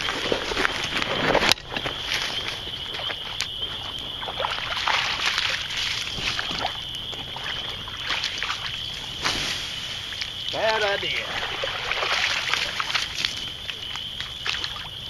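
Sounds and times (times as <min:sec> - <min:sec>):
fire crackling and popping: 0:00.0 - 0:15.0
rushing hiss of fire: 0:08.6 - 0:12.8.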